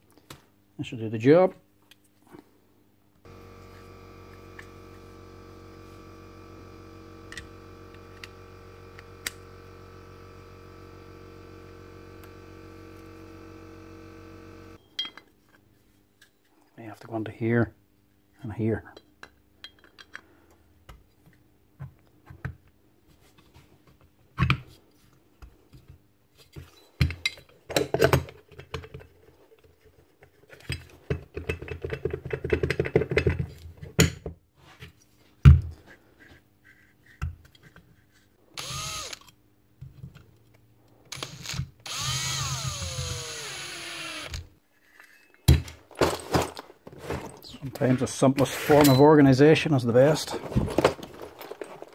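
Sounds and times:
cordless drill whirring: 0:03.3 - 0:14.8, 0:38.6 - 0:39.3, 0:41.1 - 0:44.5.

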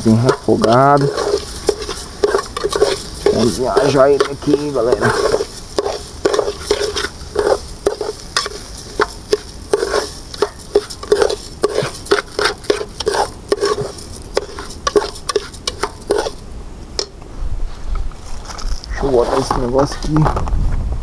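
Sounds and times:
rice sizzling in oil: 0:00.0 - 0:16.4
utensil scraping and knocking pot: 0:00.0 - 0:16.4, 0:19.0 - 0:19.8.

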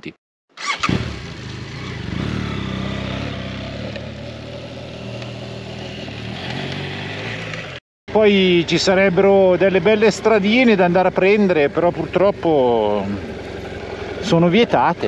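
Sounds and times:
motorcycle engine running: 0:00.6 - 0:07.8.

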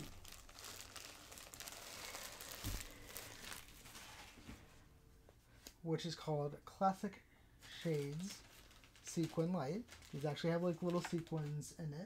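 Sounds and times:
plastic bag crinkling: 0:00.0 - 0:04.4, 0:07.6 - 0:11.7.

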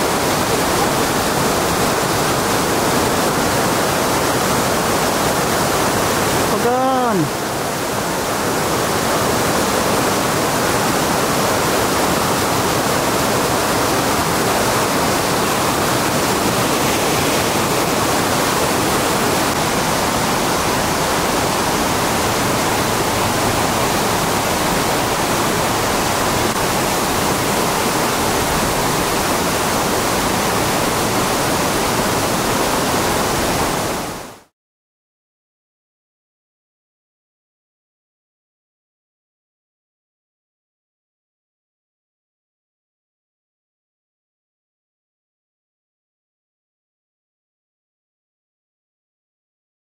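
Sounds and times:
waterfall rushing: 0:00.0 - 0:34.5.

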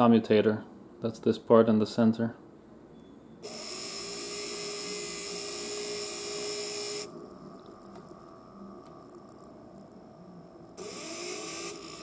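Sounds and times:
electric motor whining: 0:03.4 - 0:07.3, 0:10.8 - 0:12.0.

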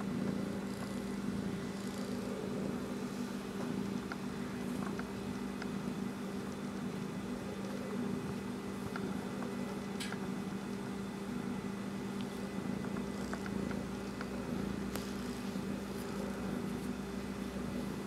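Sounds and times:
cat purring: 0:00.0 - 0:05.0
steady low hum: 0:00.0 - 0:18.0.

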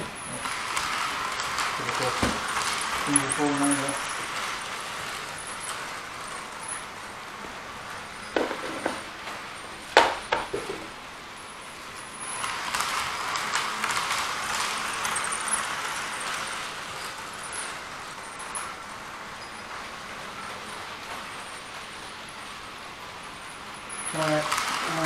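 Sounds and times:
model train rattling on track: 0:00.0 - 0:25.0
handling knocks and clicks: 0:08.4 - 0:10.9.

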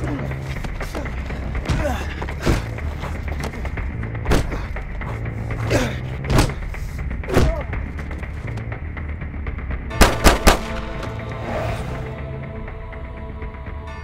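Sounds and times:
gunshots: 0:10.0 - 0:11.0.

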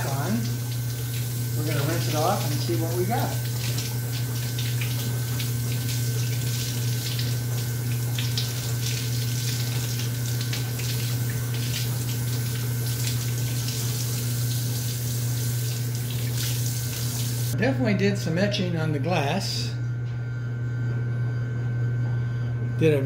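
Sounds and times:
faucet water splashing on glass: 0:00.0 - 0:17.6
steady low hum: 0:00.0 - 0:23.0.

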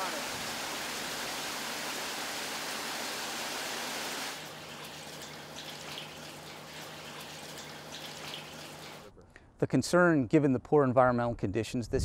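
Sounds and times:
rushing water: 0:00.0 - 0:09.1
water splashes and drips: 0:00.0 - 0:09.1.

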